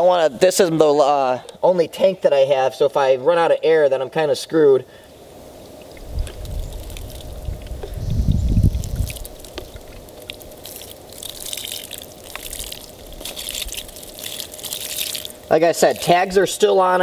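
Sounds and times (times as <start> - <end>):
water trickling and dripping: 5.6 - 16.4
low rumble: 6.0 - 10.1.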